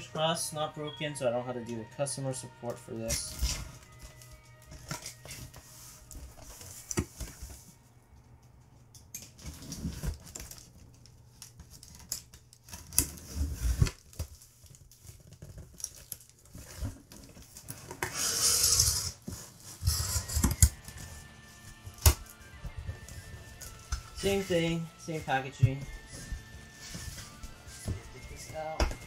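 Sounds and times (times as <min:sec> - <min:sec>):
cardboard rustling and tearing: 0:09.4 - 0:29.0
blade slitting packing tape: 0:18.0 - 0:19.2.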